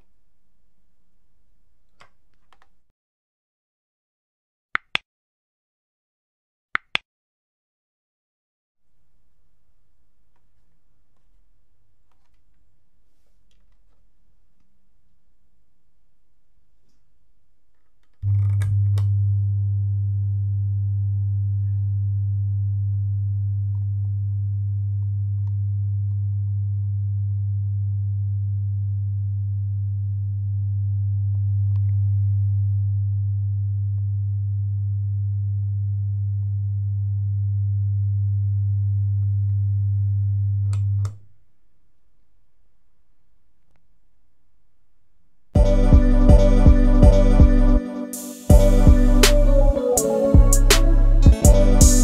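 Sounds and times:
speaker electrical hum: 8.9s - 47.8s.

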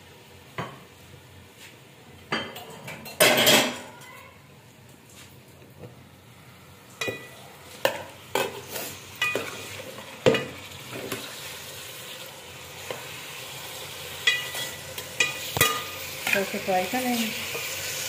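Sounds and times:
chicken sizzling: 5.1s - 18.0s.

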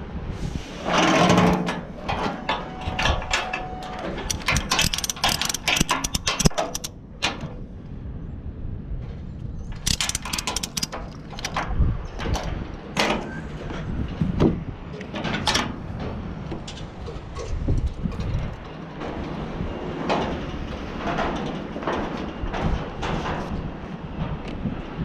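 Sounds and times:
metallic ratchet clicks: 4.3s - 6.9s, 9.8s - 11.6s
ratchet strap scraping: 4.3s - 6.9s, 9.8s - 11.6s.

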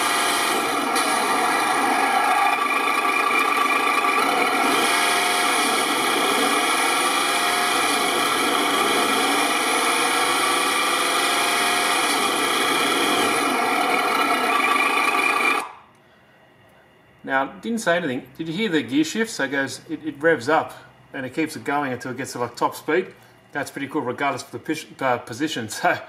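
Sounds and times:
simulated gear shifts: 0.0s - 15.7s
simulated truck engine from speaker: 0.0s - 15.8s.

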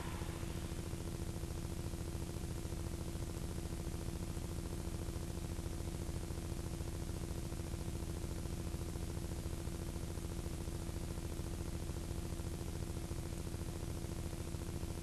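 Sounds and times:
tape hiss: 0.0s - 0.8s
low electrical hum with buzz: 0.0s - 15.0s.

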